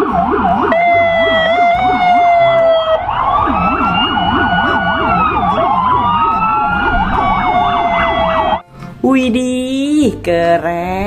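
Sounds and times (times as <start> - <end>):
police siren wail: 0.0 - 8.6
police siren yelp: 0.0 - 8.6.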